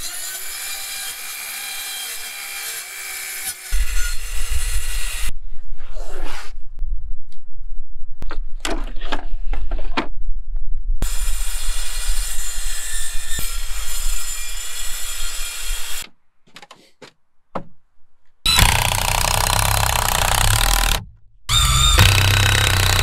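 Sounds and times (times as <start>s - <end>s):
circular saw cutting wood: 18.5s - 23.0s.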